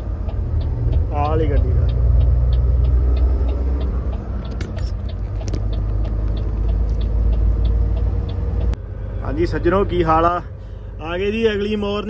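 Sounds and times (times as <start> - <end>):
faint ticking: 0.0 - 8.8
truck engine and road rumble: 0.0 - 12.0.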